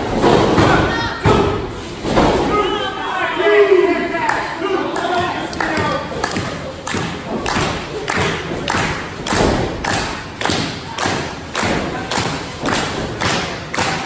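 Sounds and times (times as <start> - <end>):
crowd clapping and stomping in time: 4.9 - 14.0.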